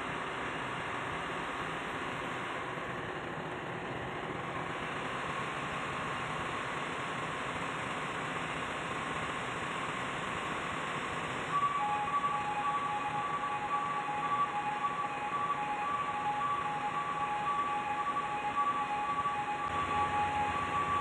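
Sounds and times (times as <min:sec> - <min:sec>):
chime-like music: 0:11.5 - 0:21.0.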